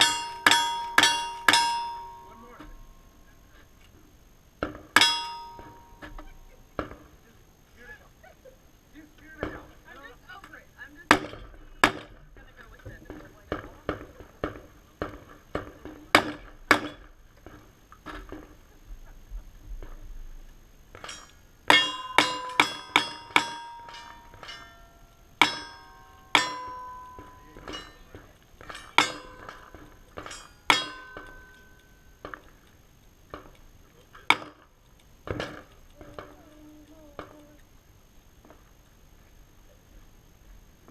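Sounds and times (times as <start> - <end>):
steel plate target ringing: 0.0 - 3.2, 4.8 - 7.0, 20.9 - 32.5.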